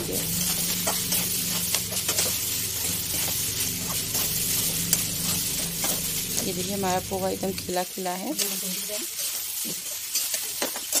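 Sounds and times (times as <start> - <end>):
food sizzling in a pan: 0.0 - 11.0
metal spatula scraping pan: 0.4 - 6.6.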